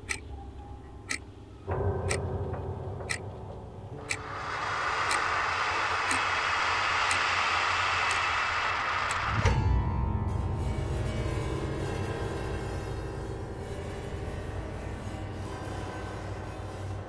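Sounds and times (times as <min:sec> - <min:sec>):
clock-like ticking: 0:00.0 - 0:00.3, 0:01.0 - 0:01.3, 0:02.0 - 0:02.3, 0:03.0 - 0:03.2, 0:04.0 - 0:09.4
low hum: 0:00.0 - 0:17.0
wide hissing noise: 0:04.0 - 0:09.7.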